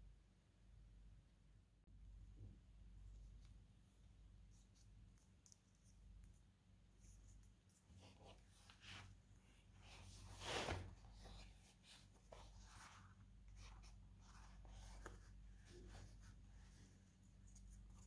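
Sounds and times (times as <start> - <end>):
leather rustling and rubbing: 7.9 - 18.0.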